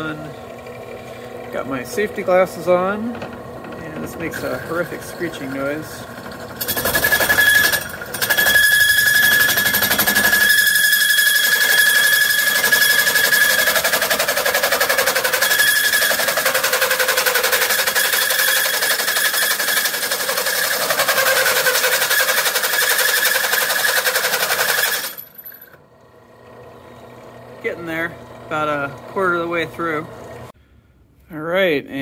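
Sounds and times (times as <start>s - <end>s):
hole saw screeching through steel: 4.2s - 25.8s.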